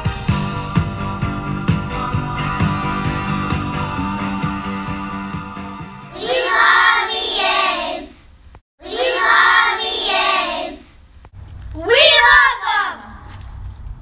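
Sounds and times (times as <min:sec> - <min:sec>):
guitar music: 0:00.0 - 0:06.1
children's voices in unison: 0:06.1 - 0:11.0.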